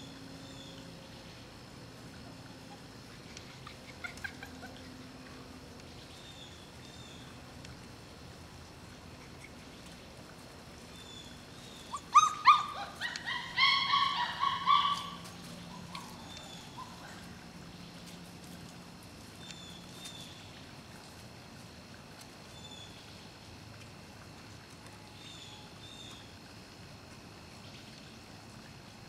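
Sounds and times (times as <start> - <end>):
puppies whining and yelping: 2.6 - 5.1, 11.7 - 17.3.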